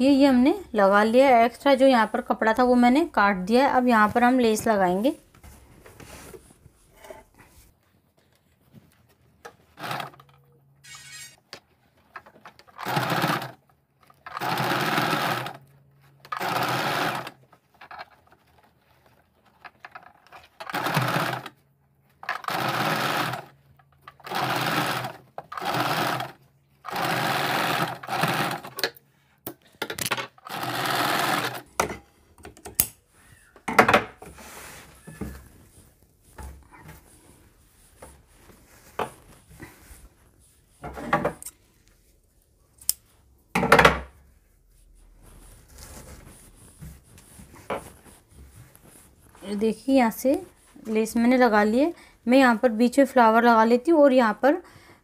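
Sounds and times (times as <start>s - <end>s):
sewing machine stitching: 9.7s - 10.3s, 12.2s - 18.5s, 19.7s - 21.6s, 22.2s - 28.9s, 30.4s - 31.7s.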